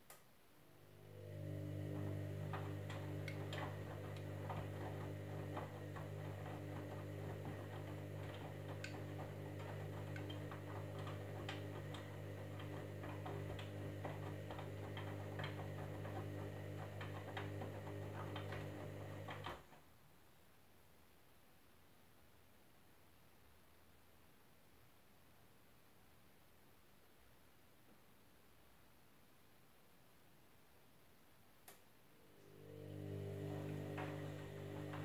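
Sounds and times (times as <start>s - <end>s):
washing machine motor humming: 0.6s - 19.7s, 32.2s - 35.0s.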